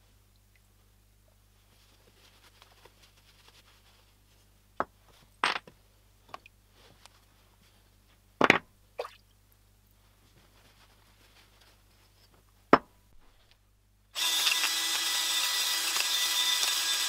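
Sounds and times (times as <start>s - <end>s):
cloth rubbing: 1.6s - 4.5s, 10.0s - 12.4s.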